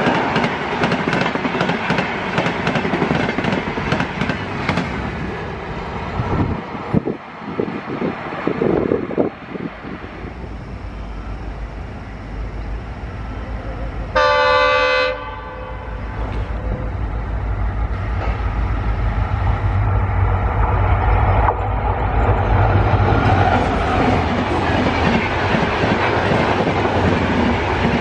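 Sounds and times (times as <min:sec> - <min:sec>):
diesel locomotive engine running: 0:00.0 - 0:28.0
train rushing past: 0:00.0 - 0:28.0
train horn blast: 0:13.3 - 0:16.8.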